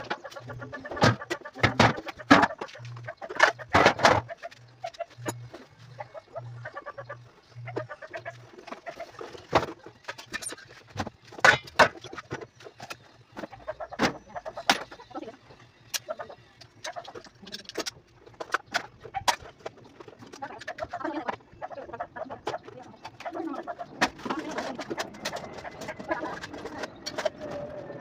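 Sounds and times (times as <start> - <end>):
boxes and pans clattering: 0.0 - 4.6, 8.7 - 15.2.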